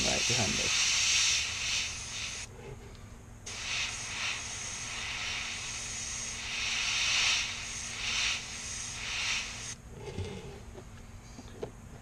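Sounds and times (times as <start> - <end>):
airbrush spraying hiss: 0.0 - 2.5, 3.5 - 9.8.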